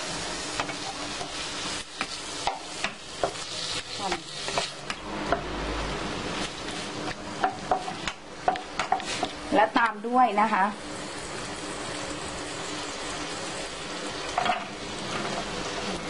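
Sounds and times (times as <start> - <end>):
chicken sizzling in butter: 0.0 - 4.9, 8.8 - 16.0.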